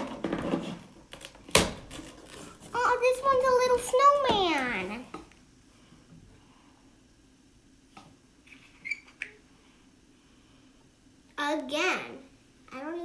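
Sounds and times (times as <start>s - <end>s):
brief high squeak: 8.5s - 9.3s.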